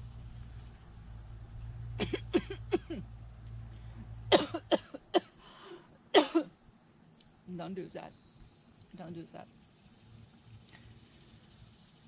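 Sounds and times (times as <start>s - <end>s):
woman coughing: 2.0s - 3.0s, 4.3s - 5.3s, 6.1s - 6.5s.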